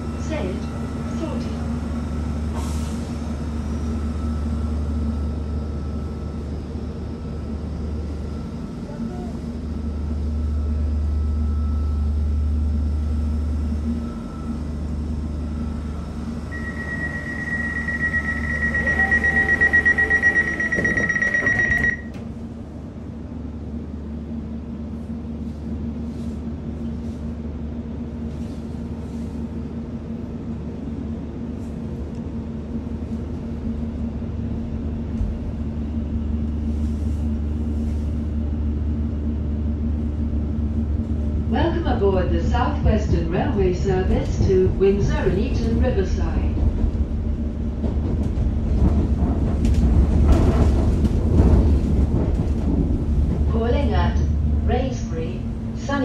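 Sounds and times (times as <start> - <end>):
electric train humming: 0.0 - 56.0
door warning beeping: 16.5 - 22.2.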